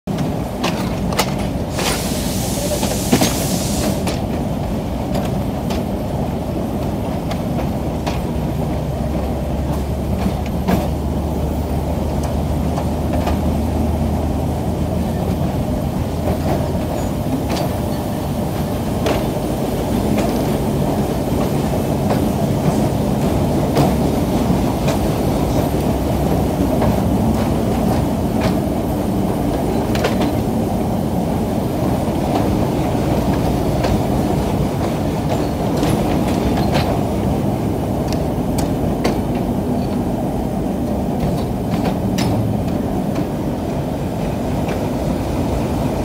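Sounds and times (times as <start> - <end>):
diesel locomotive engine drone: 0.1 - 46.0
wheels clicking on track: 0.1 - 46.0
brief hiss: 1.7 - 4.2.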